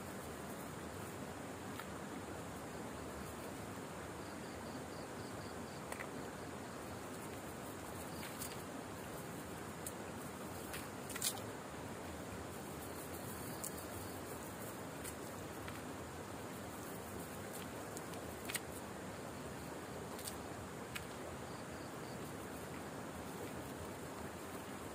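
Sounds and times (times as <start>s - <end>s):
insects trilling: 0.0s - 24.9s
steady low hiss: 0.0s - 24.9s
small clicks and rustles: 7.0s - 11.5s, 12.6s - 15.9s, 16.5s - 18.8s, 20.1s - 21.2s.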